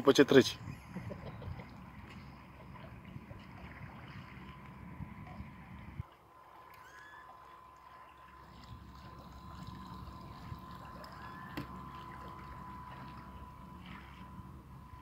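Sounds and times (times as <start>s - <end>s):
bait boat motor humming: 0.0s - 15.0s
water wash from wake: 0.0s - 15.0s.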